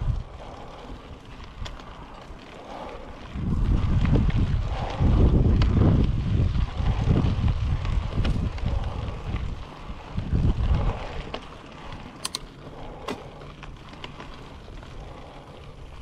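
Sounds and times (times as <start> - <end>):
bike drivetrain rattle: 0.0 - 16.0
bike tyre rumble on dirt: 0.0 - 16.0
wind buffeting microphone: 0.0 - 16.0
sharp clicks: 12.2 - 12.5.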